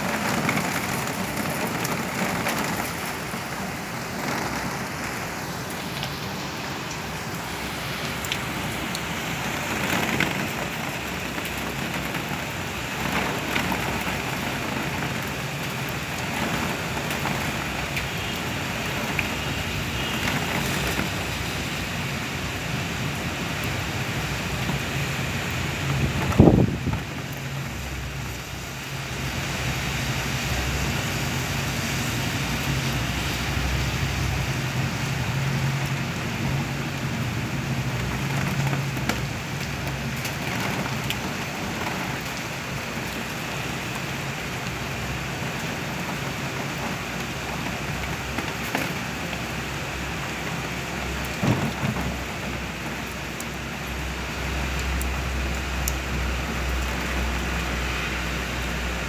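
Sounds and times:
heavy rain on pavement: 0.0s - 59.0s.

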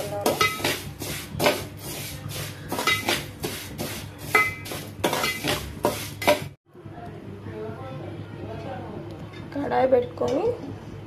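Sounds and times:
metal spoon scraping metal pan: 0.0s - 6.6s.

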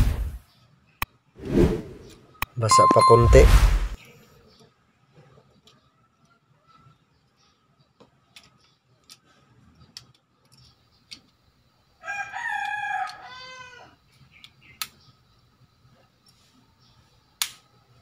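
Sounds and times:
rooster crowing: 12.0s - 14.0s.

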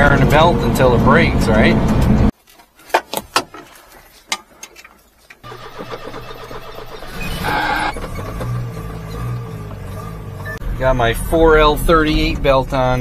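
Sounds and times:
small truck engine starting and running: 0.0s - 2.3s, 5.4s - 13.0s.

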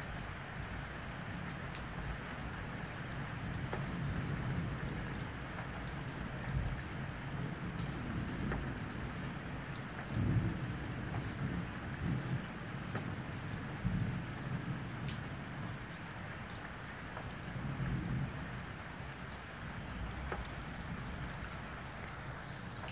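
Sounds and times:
steady rain falling: 0.0s - 22.9s
raindrop ticks: 0.1s - 22.9s
low rumble of thunder: 3.2s - 15.9s, 17.4s - 22.9s.

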